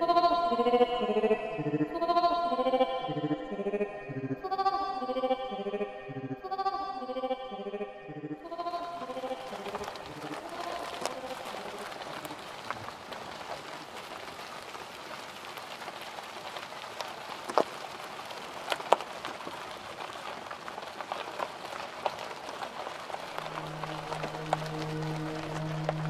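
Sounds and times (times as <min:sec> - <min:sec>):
rain-like hiss: 0:08.6 - 0:26.0.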